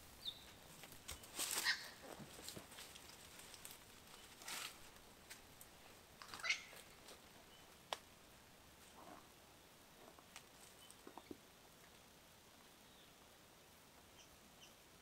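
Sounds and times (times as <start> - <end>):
dry sticks and leaves rustling: 0.4 - 8.1.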